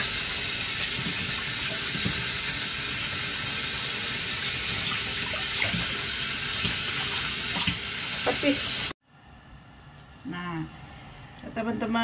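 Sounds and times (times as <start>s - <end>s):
tap running into a steel sink: 0.8s - 2.4s.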